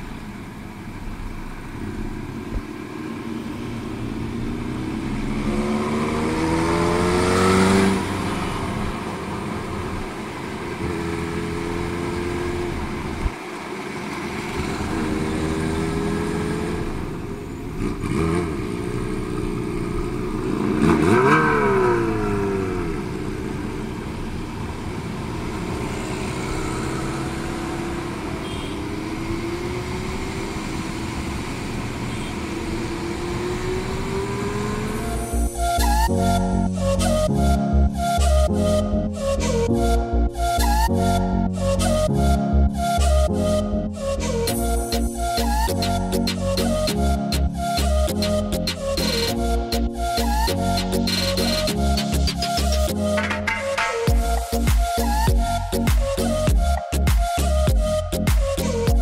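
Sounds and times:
wind and road noise: 0:00.0 - 0:59.0
motorcycle engine accelerating: 0:01.5 - 0:37.0.

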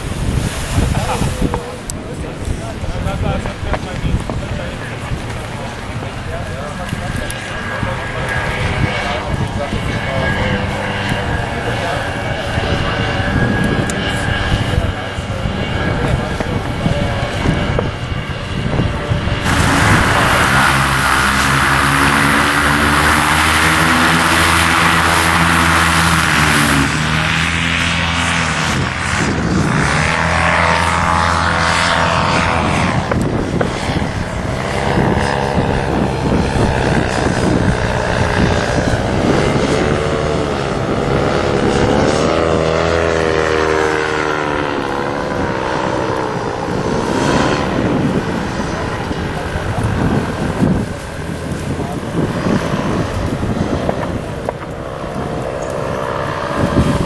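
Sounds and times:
paramotor engine drone: 0:00.0 - 0:57.0
paramotor flying past: 0:00.0 - 0:57.0.

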